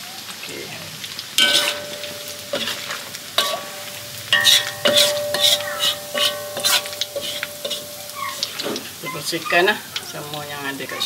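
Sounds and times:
oil sizzling: 0:00.0 - 0:11.0
metal spatula clinking on wok: 0:01.4 - 0:08.8.

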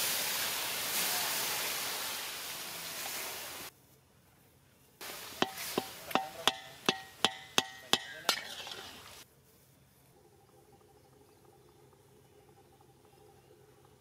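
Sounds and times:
water hissing in hot pan: 0:00.0 - 0:03.7, 0:05.0 - 0:09.2
metal ladle clanking on pan: 0:05.4 - 0:09.0.

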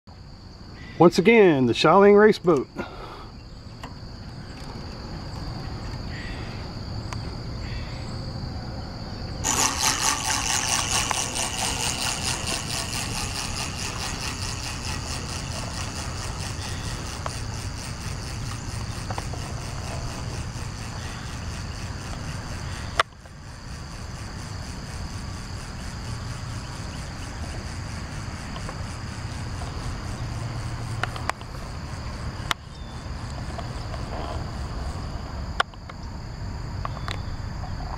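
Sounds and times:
insects chirring: 0:00.1 - 0:37.9
clockwork toy motor whirring: 0:09.4 - 0:32.6.

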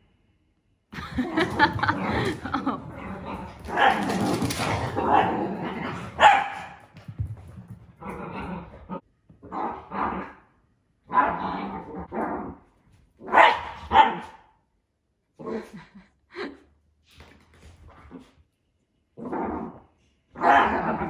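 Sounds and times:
dogs barking and growling: 0:01.0 - 0:07.0, 0:07.8 - 0:14.5, 0:19.2 - 0:21.0.

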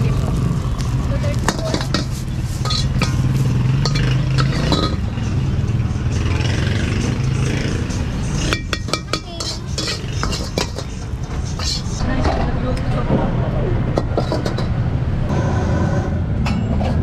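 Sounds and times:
ladle scraping a wok: 0:01.3 - 0:05.1, 0:08.2 - 0:12.0.

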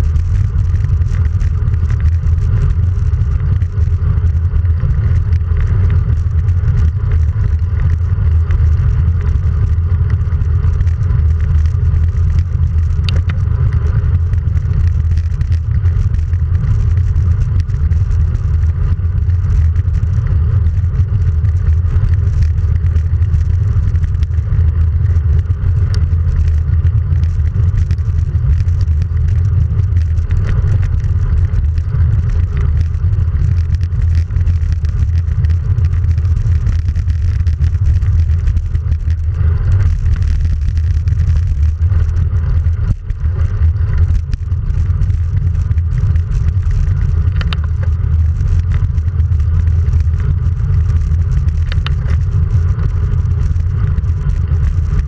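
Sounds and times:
tyre rumble: 0:00.0 - 0:55.0
faint clicks: 0:25.8 - 0:52.3.

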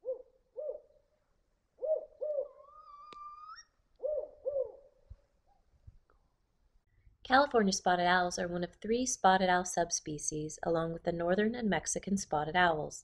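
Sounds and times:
owl hooting: 0:00.0 - 0:01.0, 0:01.8 - 0:05.0.

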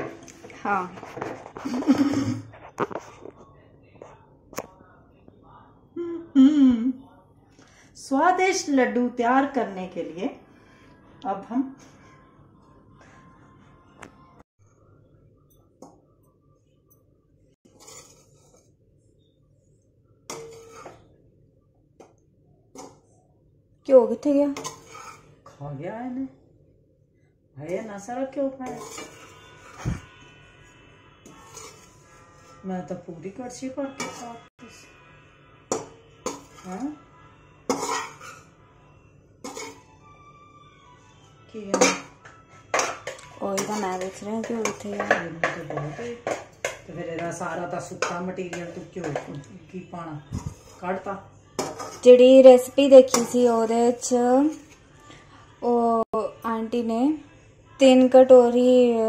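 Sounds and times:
ladle scraping metal pan: 0:17.7 - 0:18.7, 0:20.3 - 0:21.1, 0:24.5 - 0:25.6, 0:28.6 - 0:30.2, 0:31.2 - 0:32.7, 0:33.8 - 0:34.5, 0:35.7 - 0:36.8, 0:37.7 - 0:38.5, 0:39.4 - 0:39.9, 0:41.7 - 0:49.4, 0:50.4 - 0:54.7.

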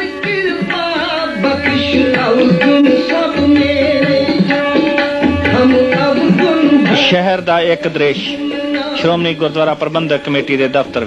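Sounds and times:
tabla drumming: 0:00.0 - 0:11.0
wavering melody: 0:04.6 - 0:07.0.

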